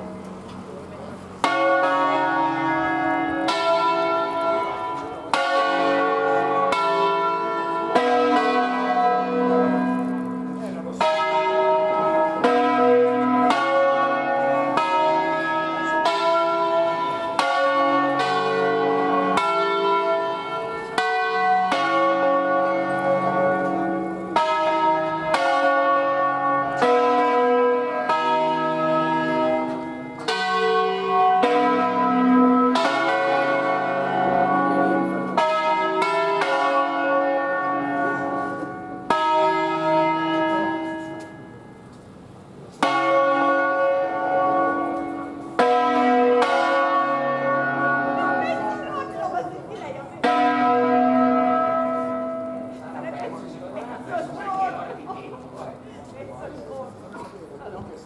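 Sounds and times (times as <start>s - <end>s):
church bells ringing: 0.0s - 57.5s.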